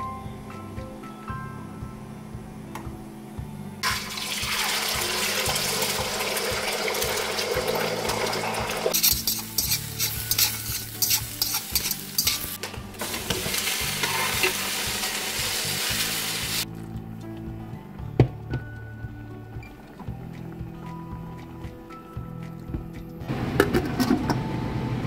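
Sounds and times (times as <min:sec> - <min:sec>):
egg sizzling in hot oil: 0:03.8 - 0:17.0
chopsticks scraping wok: 0:08.9 - 0:16.6.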